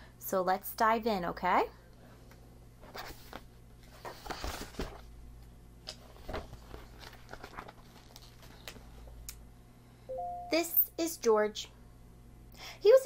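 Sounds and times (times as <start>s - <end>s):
book pages rustling: 2.8s - 5.1s, 5.8s - 9.1s.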